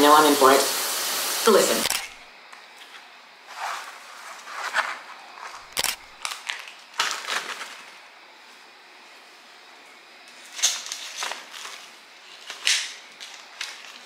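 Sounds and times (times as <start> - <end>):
packages and tote bag rustling: 3.5 - 8.0.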